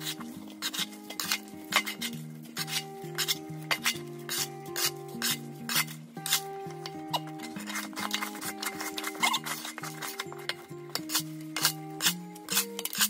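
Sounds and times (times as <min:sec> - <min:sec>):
background music: 0:00.0 - 0:13.0
shovel scraping wet mud on concrete: 0:00.0 - 0:13.0.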